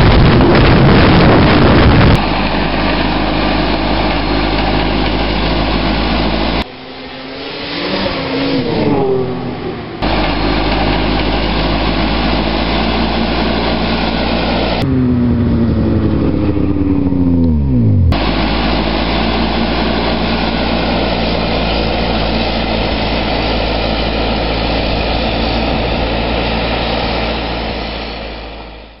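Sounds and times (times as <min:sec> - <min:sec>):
snowcat engine running: 0:00.0 - 0:29.0
tone sliding down in pitch: 0:02.3 - 0:20.0.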